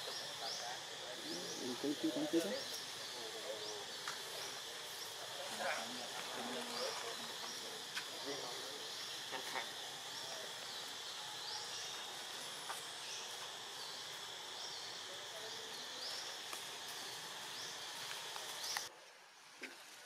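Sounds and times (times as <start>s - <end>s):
high insect drone: 0.0s - 19.0s.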